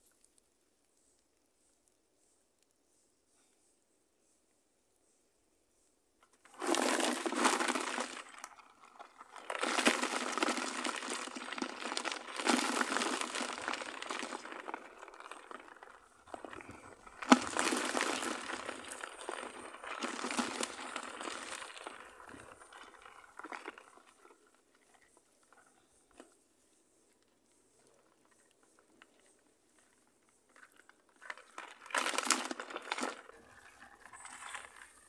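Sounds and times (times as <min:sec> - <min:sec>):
fishing net rustling and crackling: 0:06.4 - 0:24.3, 0:29.1 - 0:35.0.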